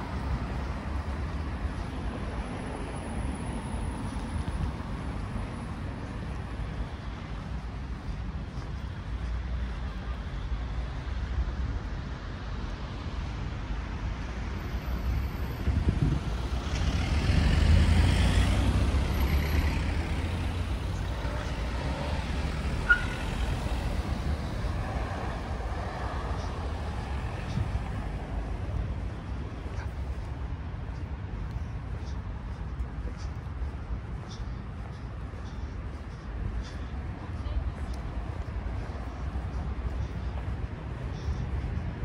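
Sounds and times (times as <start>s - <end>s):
low rumble of cars: 0.0s - 42.0s
vehicle passing by: 15.6s - 30.4s.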